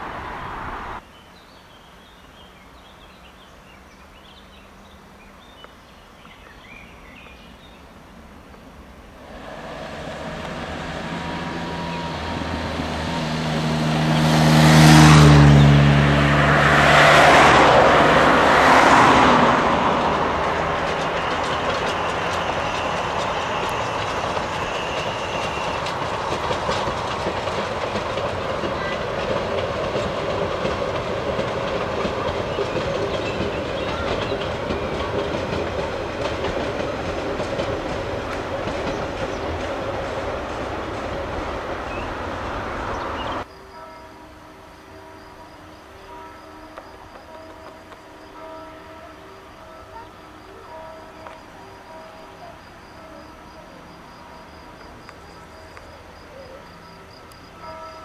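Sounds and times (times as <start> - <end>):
car road noise: 0.0 - 1.0, 9.2 - 43.5
steam train running: 8.0 - 58.0
wheel clatter: 18.6 - 42.2.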